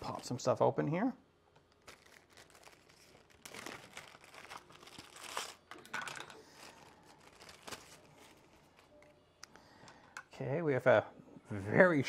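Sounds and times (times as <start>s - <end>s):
plastic bag crinkling: 1.7s - 9.1s.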